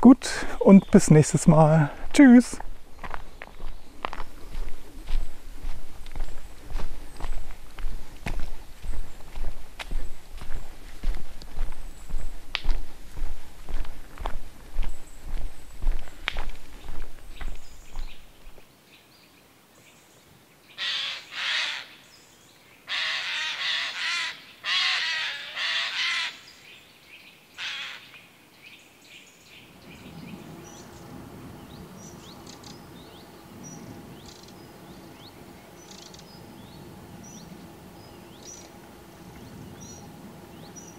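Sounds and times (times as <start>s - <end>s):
low background noise: 0.0s - 40.9s
crow cawing hoarsely: 20.8s - 22.0s, 22.9s - 26.5s, 27.6s - 28.1s.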